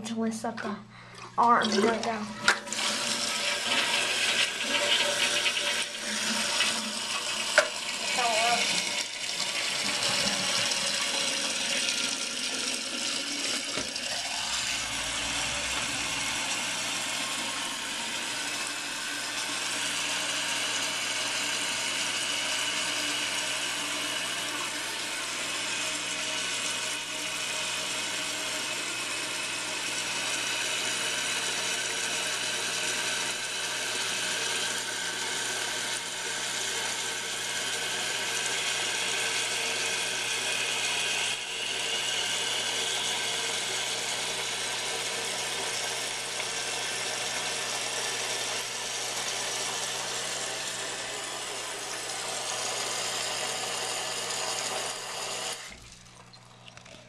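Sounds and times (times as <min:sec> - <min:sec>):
water hissing through fill valve: 0:01.9 - 0:57.0
water splashing into tank: 0:55.6 - 0:57.0.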